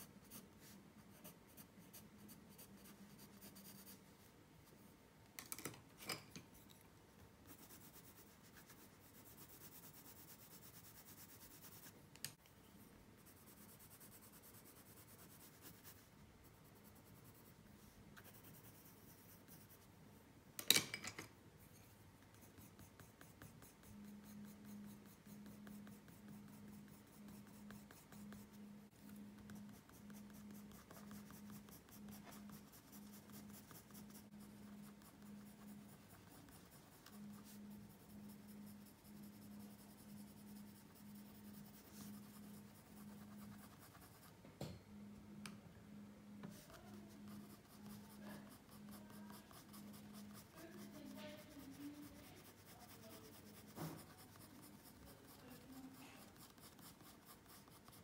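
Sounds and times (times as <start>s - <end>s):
colored pencil scratching on paper: 0.0s - 4.8s, 7.4s - 12.4s, 13.2s - 19.9s, 21.6s - 44.3s, 46.3s - 58.0s.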